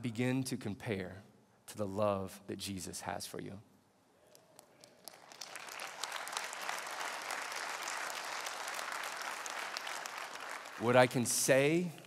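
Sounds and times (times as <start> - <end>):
congregation applauding: 4.6 - 12.0.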